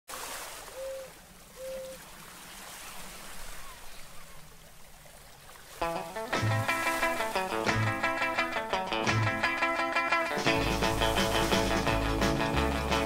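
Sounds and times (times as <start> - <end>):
surf washing up beach: 5.4 - 13.0
guitar-led music: 5.8 - 13.0.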